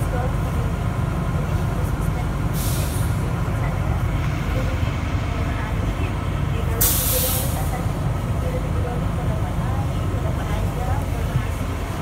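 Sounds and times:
train car equipment humming: 0.0 - 12.0
hiss of released air: 2.6 - 3.1, 6.8 - 7.7.

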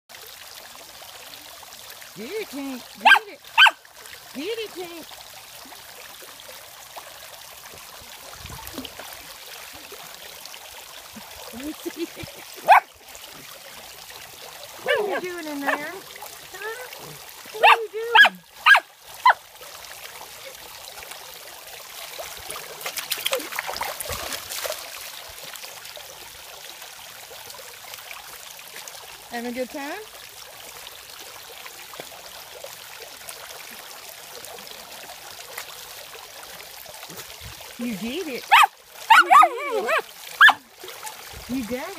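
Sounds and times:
fountain water splashing: 0.1 - 41.9
dog paddling in water: 11.2 - 19.4, 22.1 - 25.2, 38.4 - 41.9.

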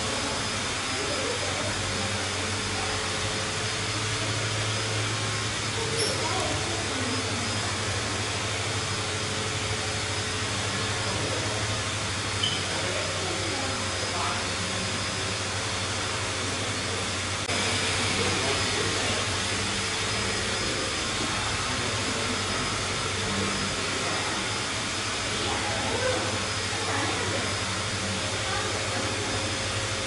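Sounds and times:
electric blower fan rushing: 0.0 - 30.0.

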